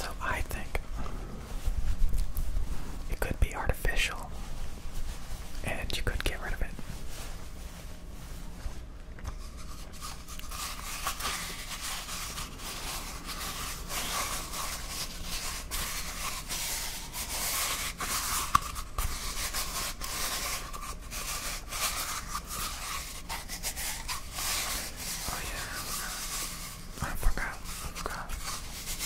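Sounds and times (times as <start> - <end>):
hands scratching object: 9.2 - 29.0.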